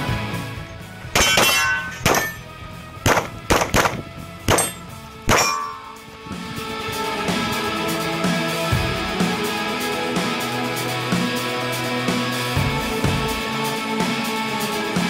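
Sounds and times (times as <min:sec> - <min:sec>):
music: 0:00.0 - 0:15.0
steel targets clanging: 0:01.1 - 0:02.5, 0:03.1 - 0:06.1
pistol shots: 0:01.2 - 0:02.4, 0:03.0 - 0:05.8.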